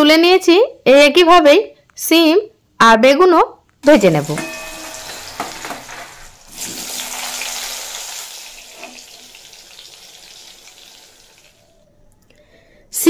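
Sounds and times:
vegetables sizzling in hot oil: 3.8 - 11.6.

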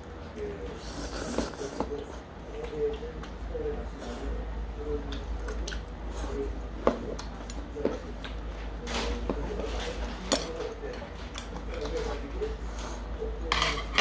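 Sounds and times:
wet eating sounds: 0.3 - 13.2
slurp: 0.8 - 1.9.

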